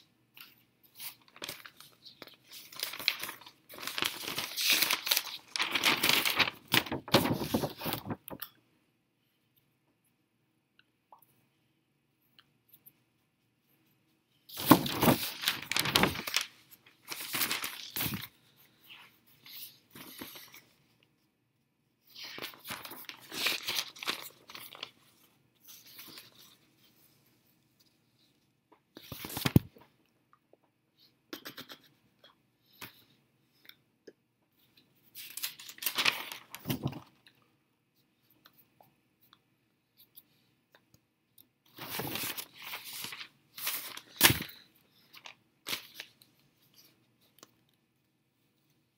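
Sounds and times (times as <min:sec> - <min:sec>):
newspaper rustling and ripping: 0:00.9 - 0:08.2, 0:14.5 - 0:18.4, 0:22.1 - 0:26.6, 0:35.2 - 0:37.0, 0:41.7 - 0:46.2.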